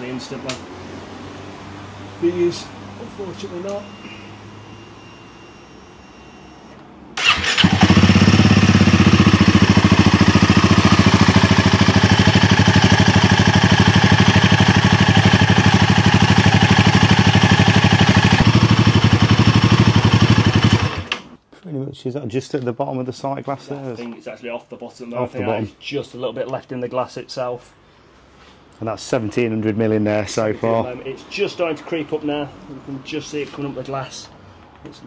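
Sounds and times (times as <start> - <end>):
motorcycle engine starting and running: 7.2 - 21.3.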